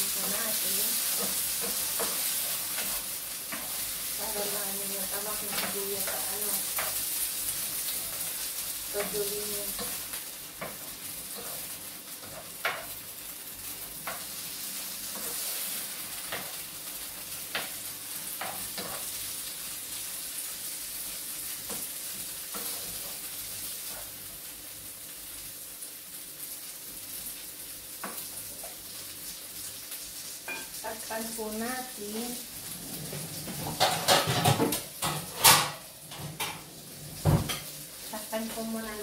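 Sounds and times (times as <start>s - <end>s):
vegetables sizzling in a pan: 0.0s - 39.0s.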